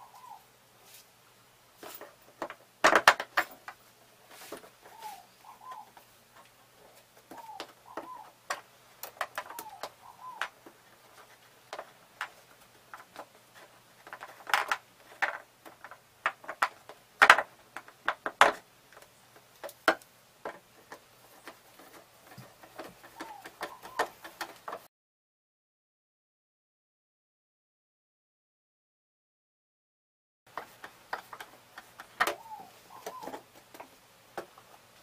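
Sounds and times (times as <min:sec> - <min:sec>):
bird calling: 0:00.0 - 0:00.5, 0:04.8 - 0:06.1, 0:06.8 - 0:11.4, 0:20.9 - 0:24.9, 0:32.0 - 0:33.9.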